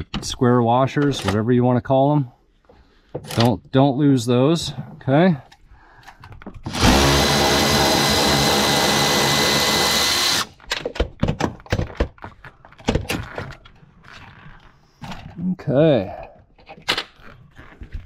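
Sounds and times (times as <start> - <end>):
electric ratchet motor whine: 6.7 - 10.5.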